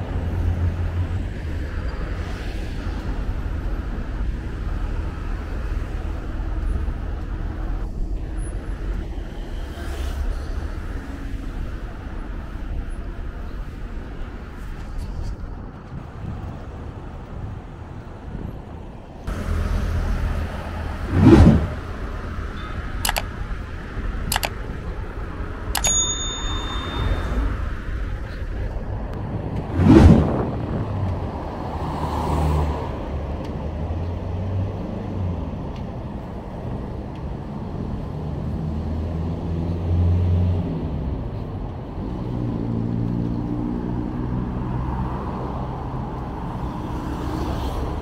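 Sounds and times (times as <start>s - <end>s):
low traffic rumble: 0.0s - 48.0s
sharp clicks: 23.0s - 23.4s, 24.2s - 24.6s, 25.8s - 26.0s.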